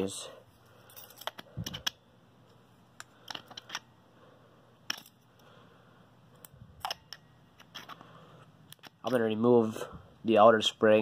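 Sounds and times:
metal flashlight parts clicking: 1.1s - 2.0s, 3.0s - 3.9s, 4.8s - 5.4s, 6.4s - 8.0s, 8.7s - 9.2s.

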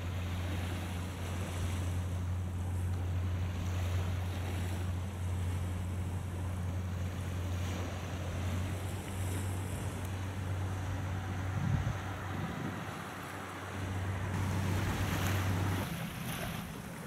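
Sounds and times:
choppy sea: 0.0s - 17.0s
steady low hum: 0.0s - 17.0s
wind on microphone: 9.2s - 16.6s.

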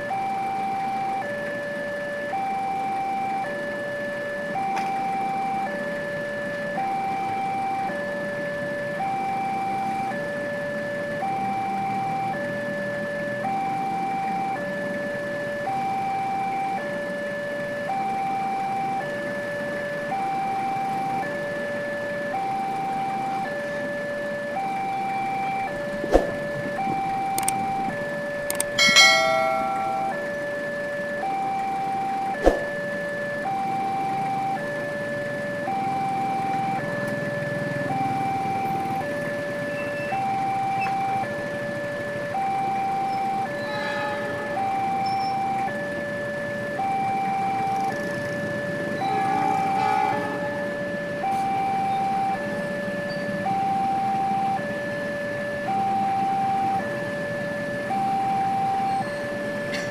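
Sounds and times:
two-tone level crossing alarm: 0.0s - 59.9s
vehicle horn: 43.6s - 44.6s, 49.1s - 50.5s.

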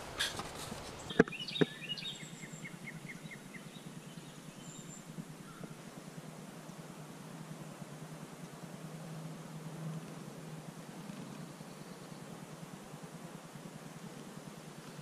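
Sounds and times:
bird chirping: 0.0s - 5.8s
woodland background noise: 0.0s - 15.0s.

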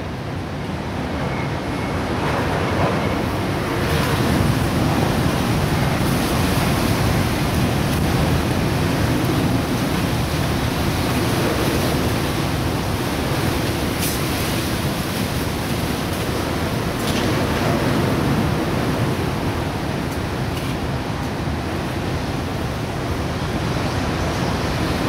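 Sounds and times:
wind buffeting microphone: 2.1s - 25.0s.

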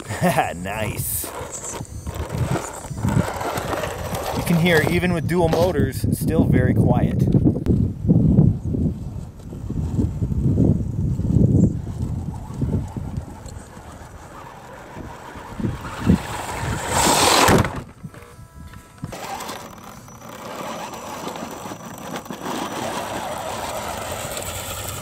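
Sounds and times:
toy truck motors whirring: 0.0s - 5.8s, 9.1s - 25.0s.

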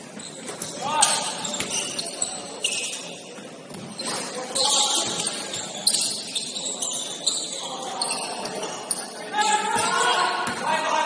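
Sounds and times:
shoe squeaks: 0.0s - 10.0s
noisy hall: 0.0s - 11.0s.

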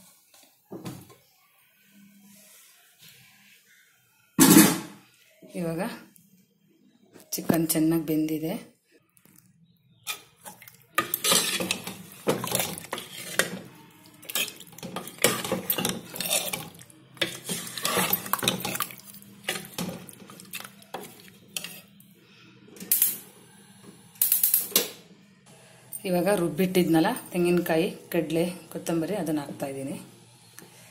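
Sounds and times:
metal ladle scraping pot: 10.0s - 22.0s.

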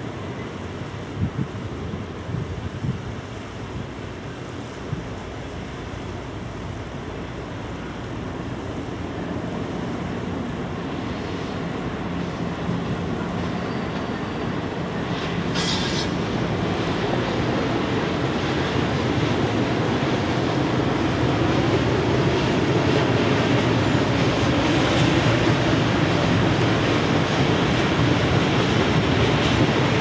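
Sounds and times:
diesel locomotive engine drone: 0.0s - 30.0s
wind noise on microphone: 1.0s - 4.0s.

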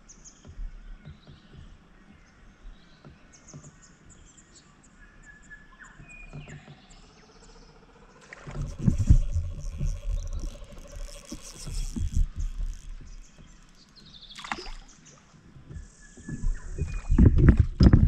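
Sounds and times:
birds chirping: 0.0s - 18.0s
steady hum: 8.3s - 13.9s
low thumps and knocks: 8.3s - 18.0s.

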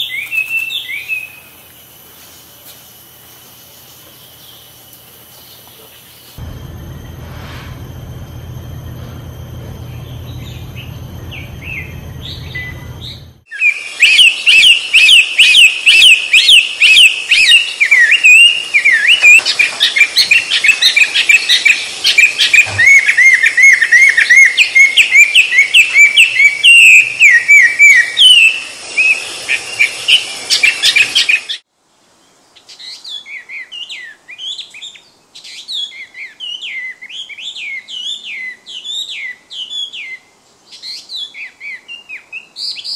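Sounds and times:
low steady hum: 6.4s - 13.4s
bird singing whistled notes: 9.8s - 31.5s.

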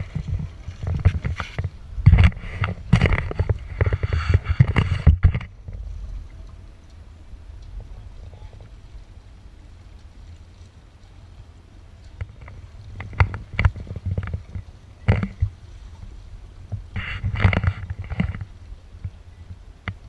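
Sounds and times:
steady low rumble: 0.0s - 20.0s
camera handling bumps and knocks: 0.1s - 5.5s.

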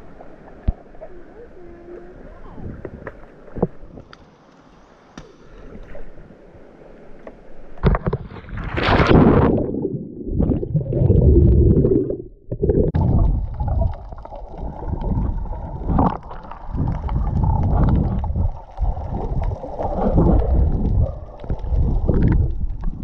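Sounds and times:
underwater gurgling and sloshing: 0.0s - 23.0s
seawater splashing: 7.8s - 12.1s, 12.9s - 23.0s.

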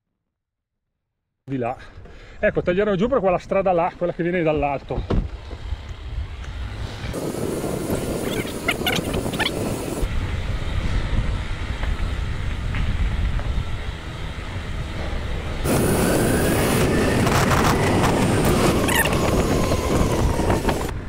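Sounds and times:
wind buffeting microphone: 4.5s - 21.0s
short squeaks: 8.2s - 9.9s, 18.7s - 19.3s.

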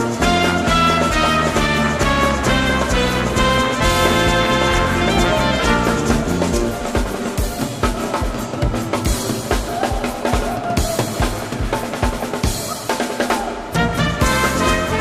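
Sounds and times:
brass playing: 0.0s - 7.6s, 13.8s - 15.0s
drum kit steady beat: 0.0s - 15.0s.

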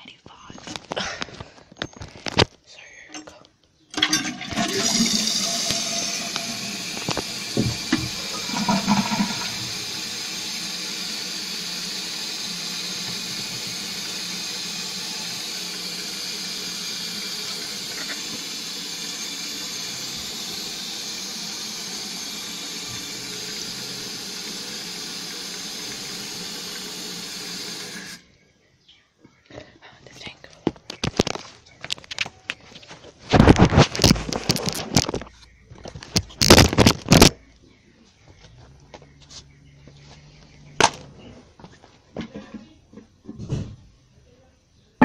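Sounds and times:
toilet flushing: 4.0s - 28.2s
water hissing into cistern: 4.0s - 28.3s
knocks in pipes: 7.0s - 9.7s.

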